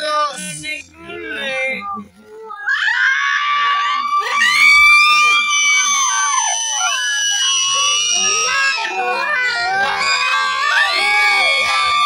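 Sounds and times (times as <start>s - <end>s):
children screaming: 2.6s - 12.0s.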